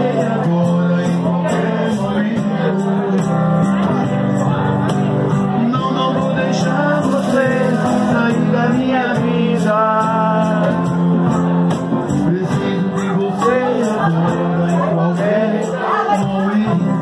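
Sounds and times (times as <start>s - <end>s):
acoustic guitar: 0.0s - 17.0s
man singing into microphone: 0.0s - 17.0s.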